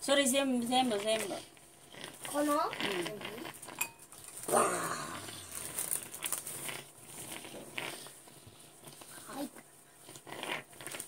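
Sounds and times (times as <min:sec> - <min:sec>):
short vocal sound: 0:04.5 - 0:05.5
tissue pack rustling: 0:05.3 - 0:06.7.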